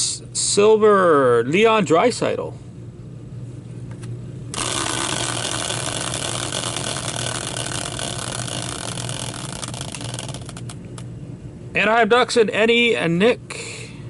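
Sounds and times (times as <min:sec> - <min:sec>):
caster wheel whirring: 0:04.6 - 0:11.0.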